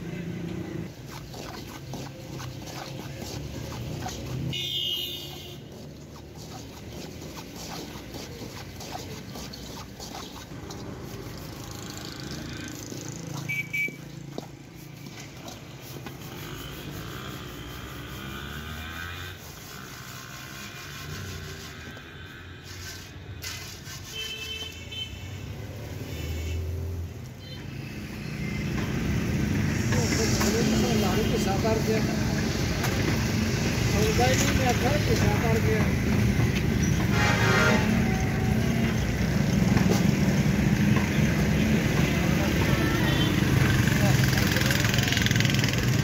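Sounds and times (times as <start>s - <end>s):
street traffic: 0.0s - 46.0s
metal scoop scraping sand in wok: 0.9s - 13.9s, 22.6s - 24.6s.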